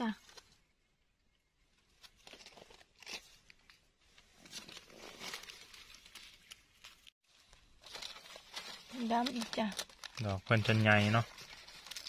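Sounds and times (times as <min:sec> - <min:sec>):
dry leaves rustling and crackling: 0:04.4 - 0:12.0.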